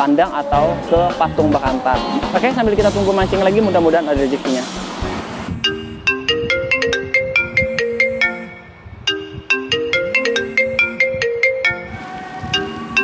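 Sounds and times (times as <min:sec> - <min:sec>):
mobile phone ringtone melody: 0:05.6 - 0:13.0.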